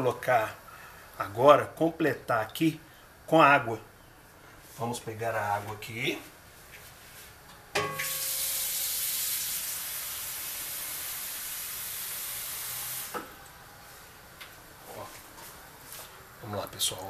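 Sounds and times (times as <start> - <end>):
water running from tap: 8.0 - 13.3.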